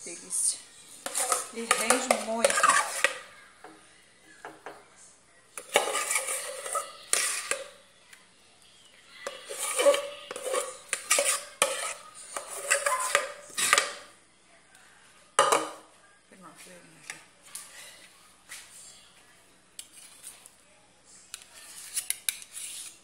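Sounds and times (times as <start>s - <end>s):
metal spoon scraping a pot: 1.0s - 3.3s, 5.6s - 7.8s, 9.2s - 14.1s, 21.4s - 23.0s.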